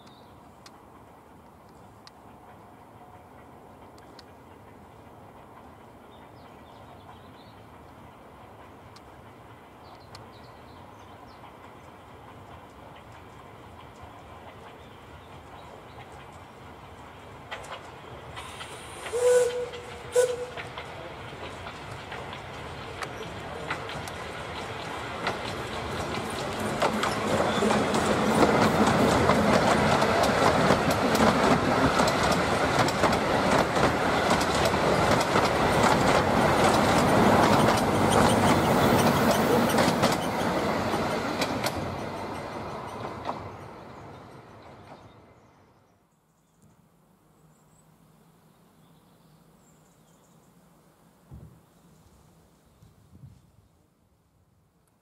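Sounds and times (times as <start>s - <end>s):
steam train passing: 0.3s - 45.7s
wheels clattering over rail joints: 19.6s - 43.6s.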